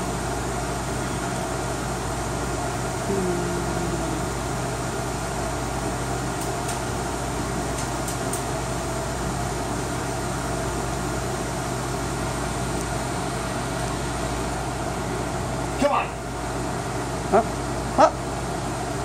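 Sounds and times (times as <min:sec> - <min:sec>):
computer fans whirring: 0:00.0 - 0:19.0
low hum: 0:03.0 - 0:05.1.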